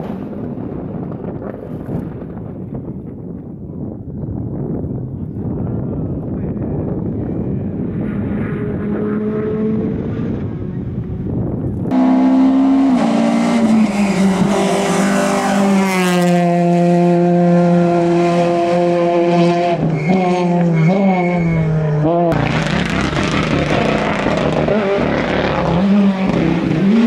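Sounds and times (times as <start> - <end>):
noisy rush: 0.0 - 27.0
rally car engine revving: 7.0 - 27.0.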